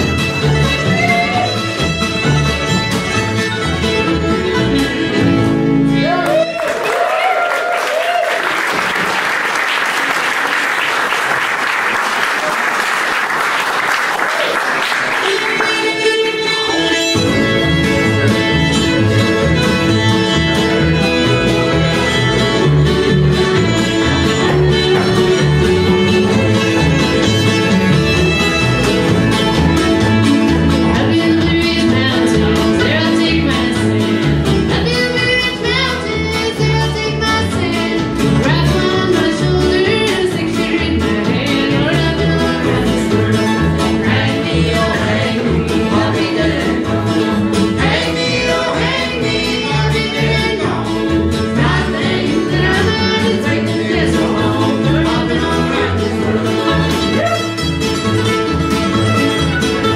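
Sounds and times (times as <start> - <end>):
mandolin: 0.0 - 6.7, 15.1 - 59.9
fiddle: 0.0 - 6.8, 15.2 - 59.9
acoustic guitar: 0.0 - 7.4, 8.6 - 59.9
upright bass: 0.0 - 7.4, 15.2 - 59.9
woman singing: 15.2 - 17.1, 30.8 - 57.2.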